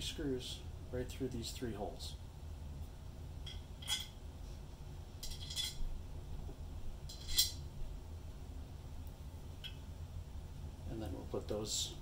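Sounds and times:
small metal screws clinking: 5.2 - 5.8, 7.1 - 7.6.

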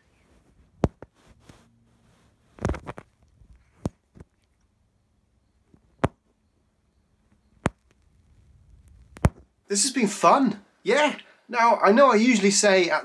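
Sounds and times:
cat scuffling: 0.0 - 4.5.

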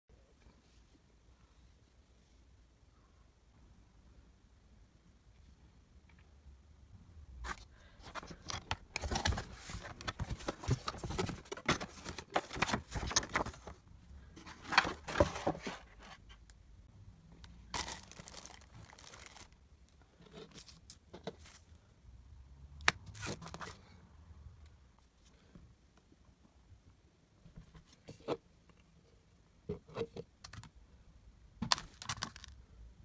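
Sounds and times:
packaging crinkling and tearing: 17.7 - 19.6.

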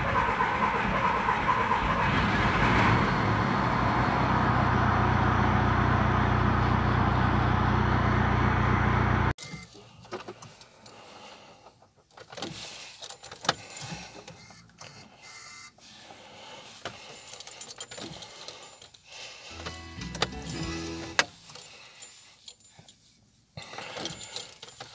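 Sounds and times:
diesel engine idling: 0.0 - 9.3
keys jangling: 12.2 - 14.4, 17.0 - 24.9.

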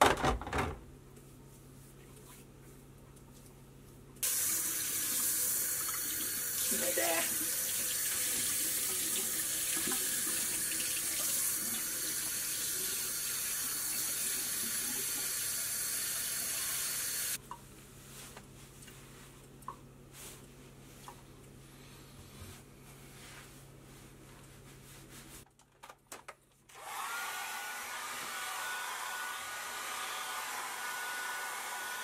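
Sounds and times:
tap water running: 4.2 - 17.4.

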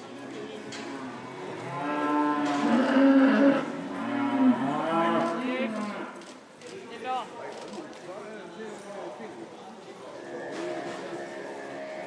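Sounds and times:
cow mooing: 1.6 - 6.1.

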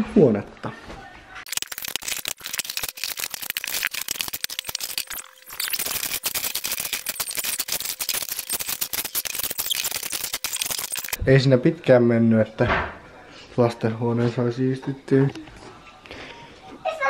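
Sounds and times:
toys clattering: 1.5 - 11.2.

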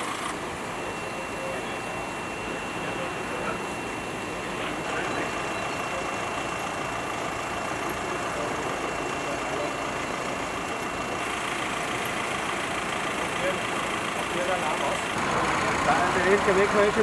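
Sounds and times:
vehicle engines idling: 0.0 - 17.0.

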